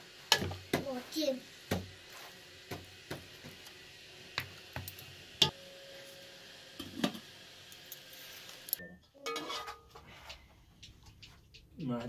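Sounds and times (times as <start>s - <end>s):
ladle scraping metal pot: 9.2s - 10.0s.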